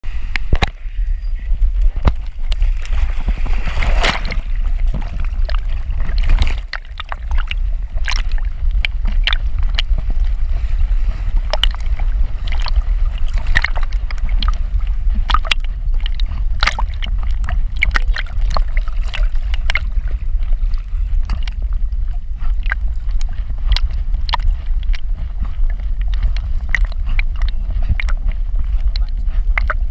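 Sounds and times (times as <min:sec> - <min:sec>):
water sloshing low rumble: 0:00.0 - 0:29.9
sharp water splashes: 0:02.0 - 0:20.0.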